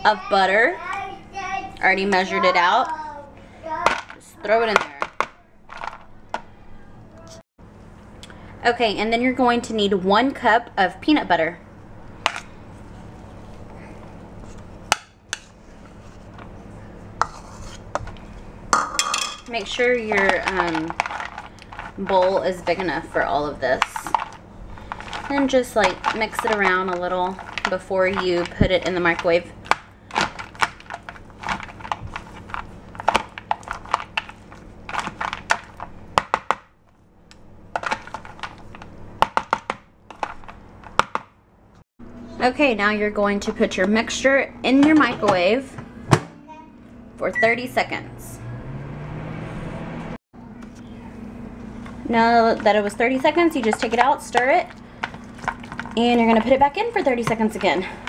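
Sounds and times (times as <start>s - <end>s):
metal spoon scraping plastic bowl: 17.2s - 18.3s.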